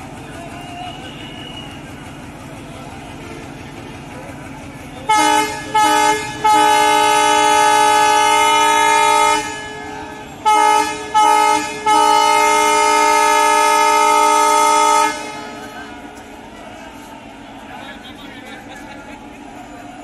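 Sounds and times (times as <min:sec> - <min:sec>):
locomotive air horn blasts: 0:05.1 - 0:15.8.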